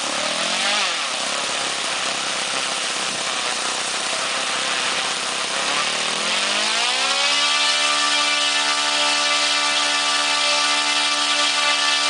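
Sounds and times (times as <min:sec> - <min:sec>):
model aircraft engine: 0:00.0 - 0:12.0.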